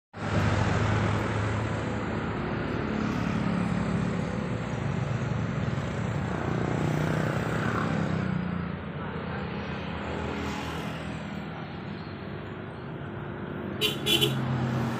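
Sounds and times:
outdoor background noise: 0.2s - 14.9s
vehicle engine humming: 0.2s - 14.9s.

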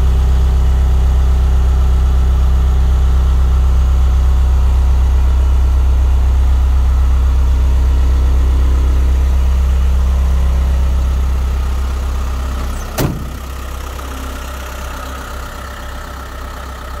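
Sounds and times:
diesel engine idling: 0.0s - 17.0s
car door shutting: 12.6s - 13.6s.

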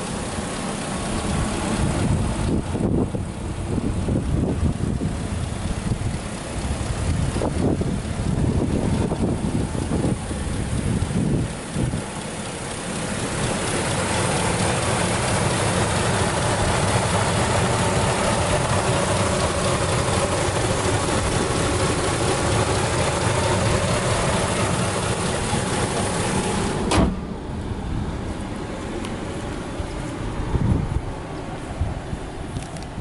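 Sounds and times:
car engine idling: 0.0s - 33.0s
car hood slamming shut: 26.8s - 27.3s.

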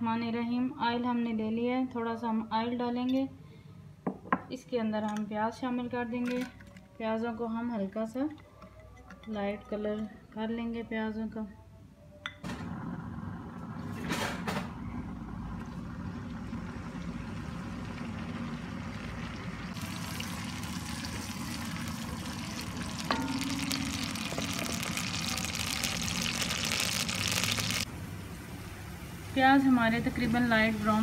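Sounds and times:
onions sizzling in hot oil: 15.8s - 31.0s.

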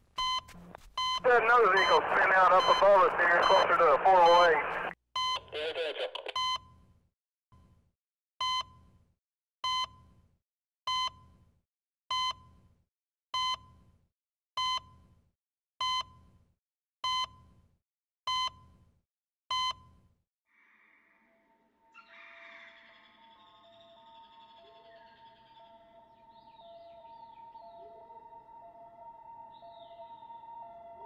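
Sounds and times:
short electronic beeps: 0.2s - 5.5s.

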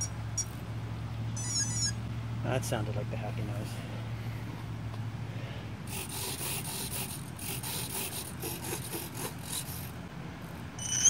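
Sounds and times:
servos buzzing: 1.4s - 2.0s, 10.8s - 11.0s.

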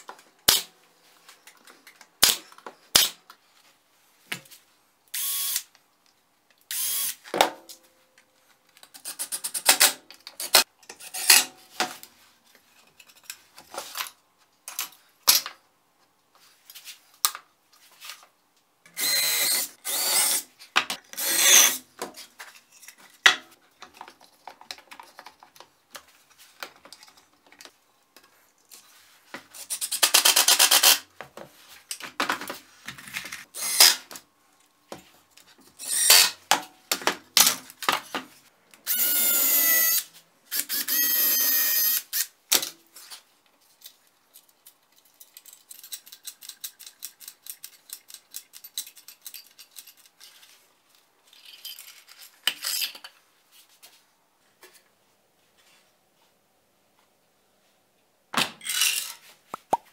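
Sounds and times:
power drill running: 19.0s - 20.4s, 38.9s - 42.1s.

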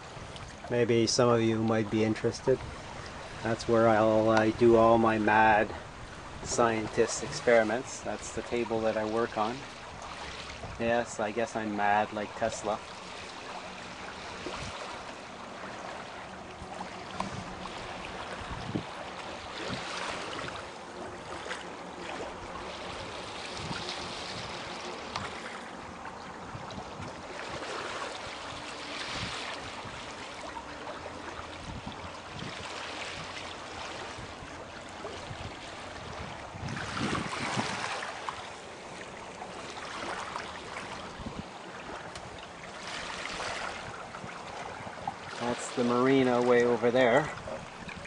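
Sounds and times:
water rushing along boat hull: 0.0s - 48.0s.

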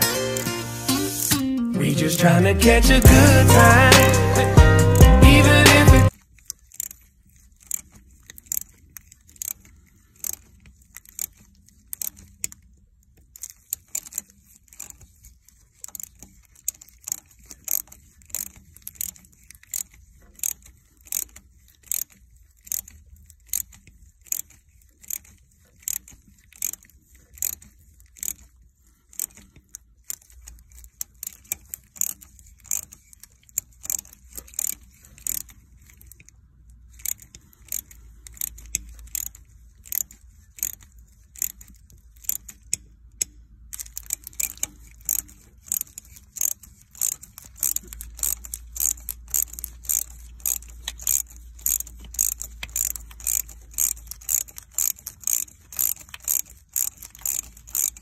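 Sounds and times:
socket ratchet clicking: 3.0s - 7.0s, 15.7s - 28.5s, 29.1s - 58.0s.

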